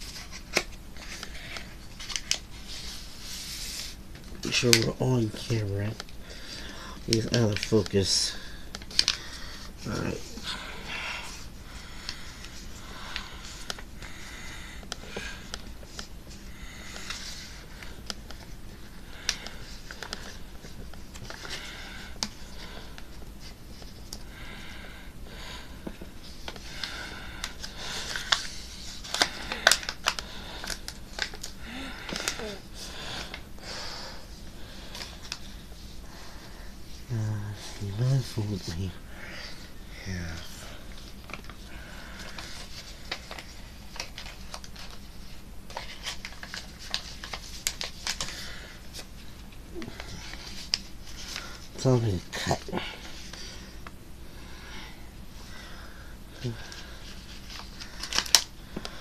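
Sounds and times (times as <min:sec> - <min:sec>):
paper rustling and crinkling: 0:00.0 - 0:06.0, 0:07.1 - 0:10.3, 0:26.2 - 0:32.6, 0:40.1 - 0:53.8, 0:56.4 - 0:59.0.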